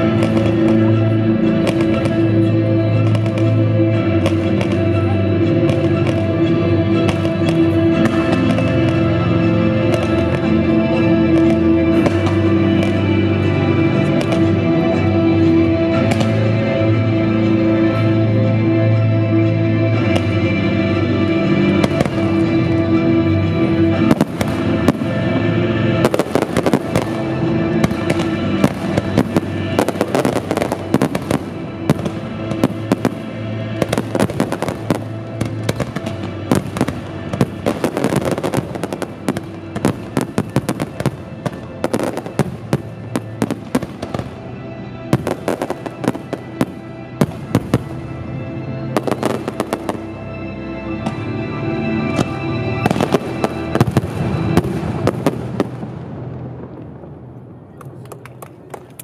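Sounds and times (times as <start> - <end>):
fireworks bursting and crackling: 0.0 - 10.6, 24.0 - 44.5, 45.1 - 48.2, 49.0 - 50.1, 52.1 - 56.8
recorded music: 0.0 - 59.0.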